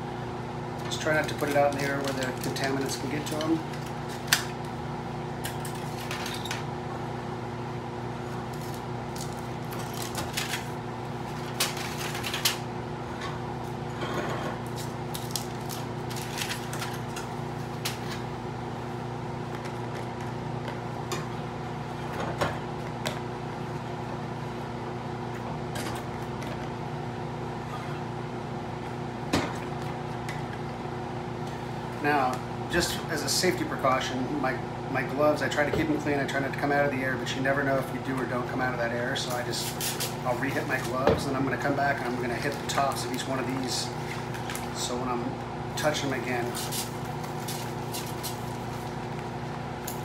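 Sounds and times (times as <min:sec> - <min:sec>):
blower fan humming: 0:00.0 - 0:50.0
aluminium foil crinkling: 0:01.0 - 0:04.5, 0:08.5 - 0:12.6, 0:14.7 - 0:18.2, 0:46.4 - 0:49.2.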